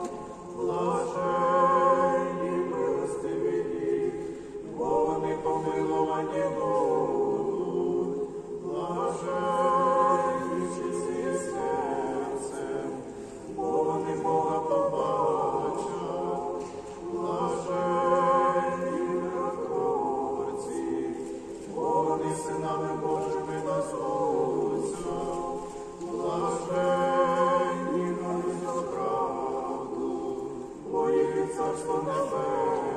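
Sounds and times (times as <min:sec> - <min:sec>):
church choir chanting a cappella: 0:00.0 - 0:32.9.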